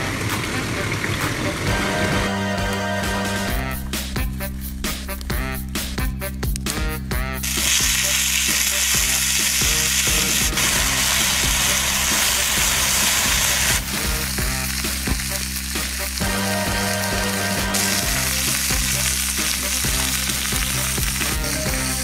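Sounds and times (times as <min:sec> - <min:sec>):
background music with low bass: 0:00.0 - 0:22.0
food sizzling on hot stone: 0:07.4 - 0:22.0.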